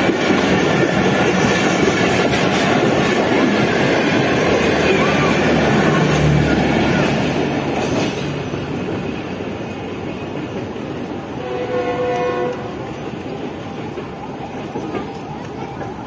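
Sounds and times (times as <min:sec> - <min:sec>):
train rumble: 0:00.0 - 0:16.0
train horn: 0:11.4 - 0:12.8.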